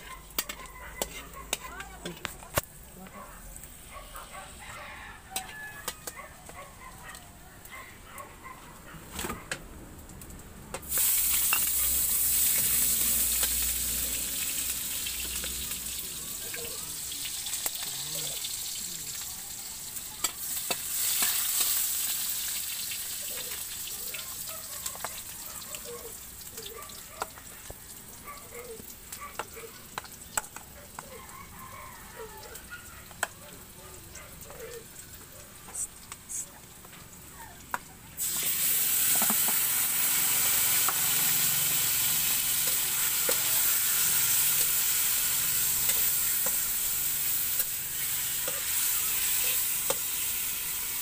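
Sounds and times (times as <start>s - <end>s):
spatula scraping a pan: 0.0s - 2.3s
oil sizzling in a wok: 0.0s - 3.9s, 4.5s - 6.6s, 10.0s - 51.0s.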